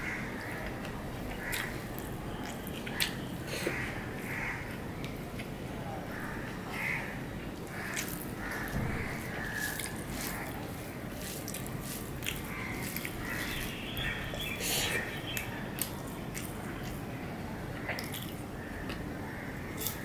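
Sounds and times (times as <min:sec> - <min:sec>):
chewing and lip smacks: 0:11.2 - 0:13.2, 0:15.4 - 0:17.0, 0:17.8 - 0:19.1.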